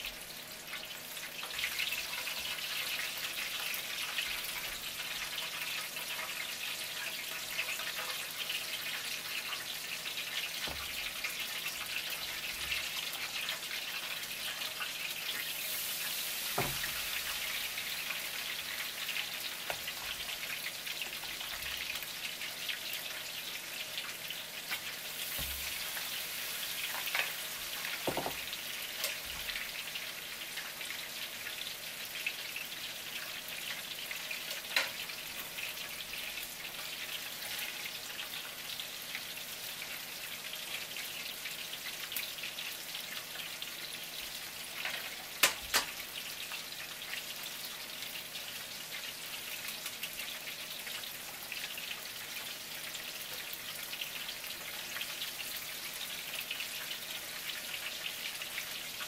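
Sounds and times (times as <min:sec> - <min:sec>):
food sizzling in deep-frying oil: 0:00.0 - 0:59.0.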